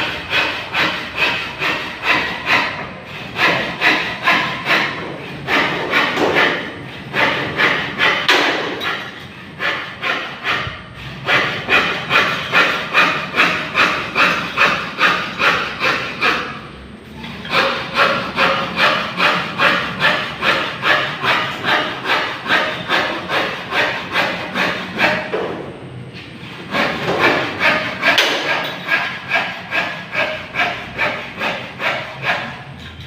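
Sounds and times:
hacksaw cutting metal: 0.0s - 25.5s, 26.4s - 33.0s.

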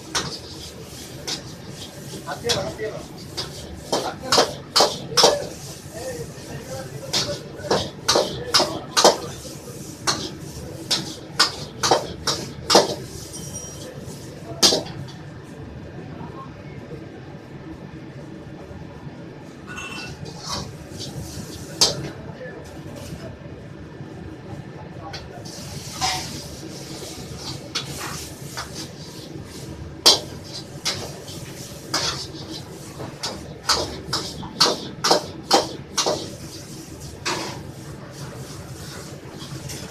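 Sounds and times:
gas burner rushing: 0.0s - 15.1s, 25.3s - 39.9s.

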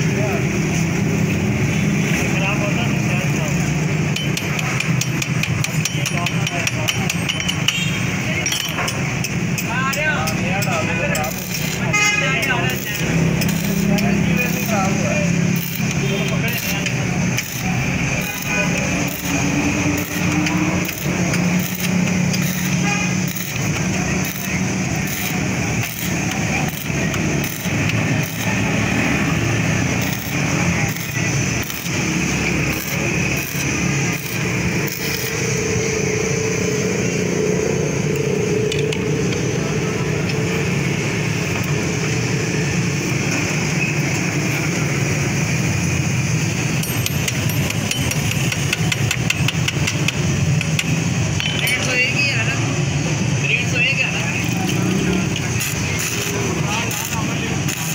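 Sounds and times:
welding arc crackling and hissing: 10.8s - 46.8s, 48.1s - 57.9s.

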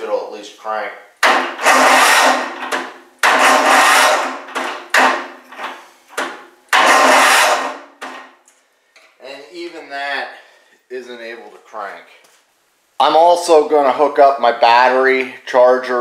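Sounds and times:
electric starter motor engaging: 1.2s - 5.4s, 6.8s - 8.0s.

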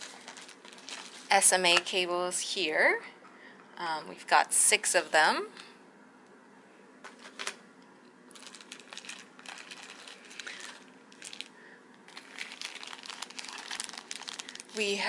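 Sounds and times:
plastic bag crinkling: 0.0s - 1.9s, 8.3s - 15.0s.

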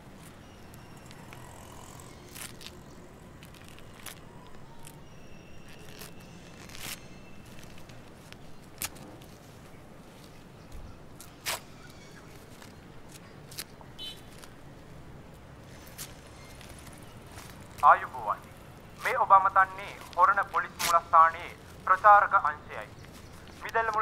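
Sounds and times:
newspaper crinkling: 3.4s - 5.0s, 5.6s - 10.3s.

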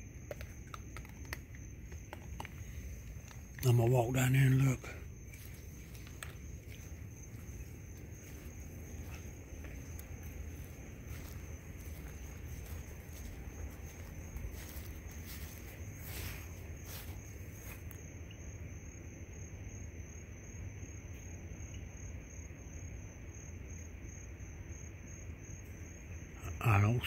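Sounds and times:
night insects trilling: 0.0s - 27.0s
footsteps through grass: 2.0s - 18.0s.

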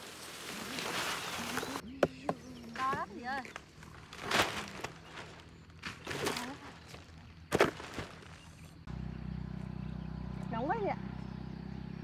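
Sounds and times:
root clump knocking and rustling: 1.0s - 8.5s.

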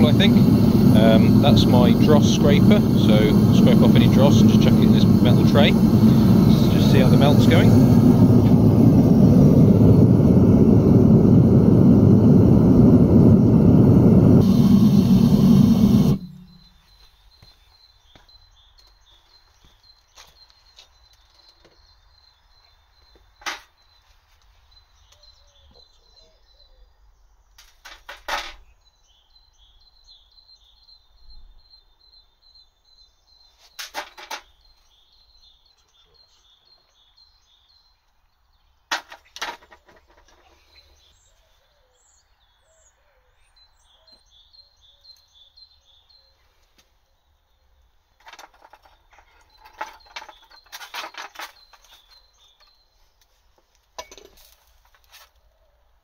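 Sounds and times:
small bird chirping: 34.4s - 39.4s, 40.4s - 53.4s.

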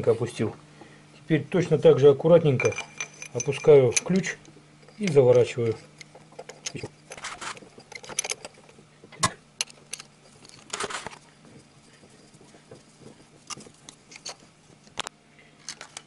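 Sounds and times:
metallic clicks and scraping: 2.6s - 11.2s, 13.4s - 16.0s.

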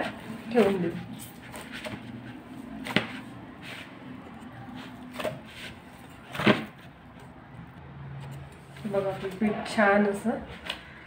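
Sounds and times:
hands kneading dough: 0.0s - 9.4s.

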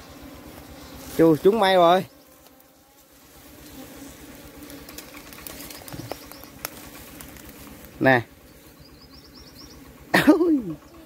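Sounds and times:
honeybees buzzing: 0.0s - 11.0s
twigs and leaves rustling: 0.4s - 8.9s.

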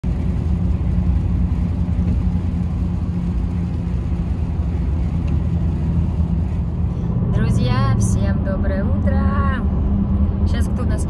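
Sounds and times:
tyre noise on wet road: 0.0s - 8.3s
in-cabin engine drone: 0.0s - 11.0s.

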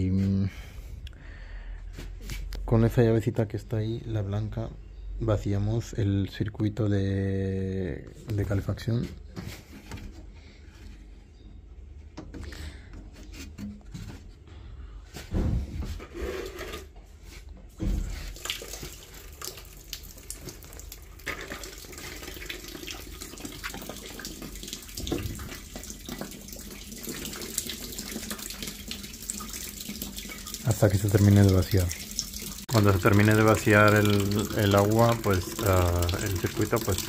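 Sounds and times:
rush of draining water: 17.8s - 37.0s.

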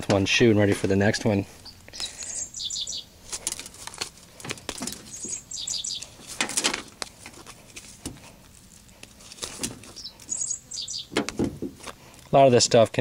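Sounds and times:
bird chirping: 1.5s - 3.6s, 4.6s - 6.4s, 9.5s - 11.8s.

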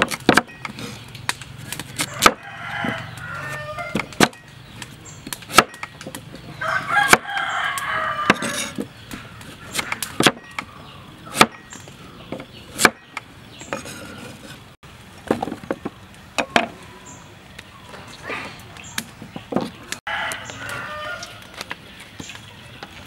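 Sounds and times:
cleaver chopping on wooden board: 0.0s - 0.6s, 2.0s - 3.0s, 3.9s - 4.4s, 5.4s - 6.2s, 7.0s - 7.4s, 9.7s - 10.7s, 11.3s - 11.7s, 12.3s - 13.8s.

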